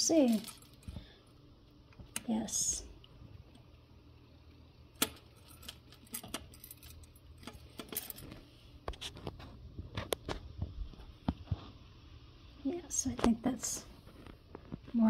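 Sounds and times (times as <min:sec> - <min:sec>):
metal jewelry clinking: 0:00.0 - 0:01.0, 0:05.0 - 0:08.5.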